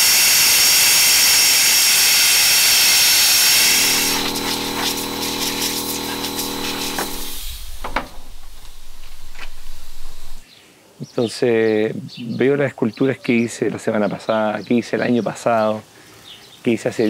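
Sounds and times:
angle grinder cutting marble: 0.0 - 10.4.

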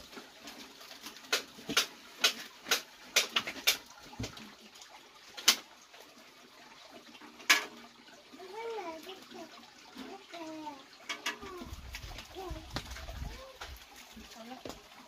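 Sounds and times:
sharp irregular clicks and knocks: 1.3 - 4.4, 11.1 - 11.5.

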